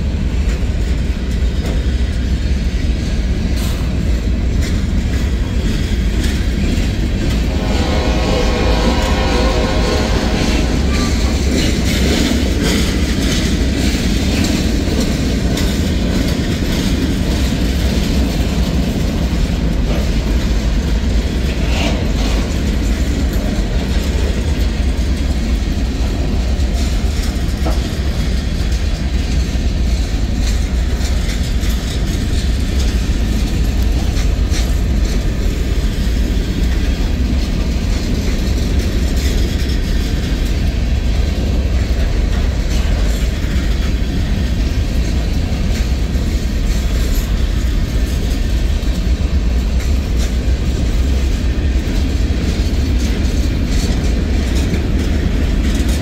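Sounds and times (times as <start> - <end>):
freight train rumbling past: 0.0 - 56.0
wheels clicking over rail joints: 11.2 - 56.0.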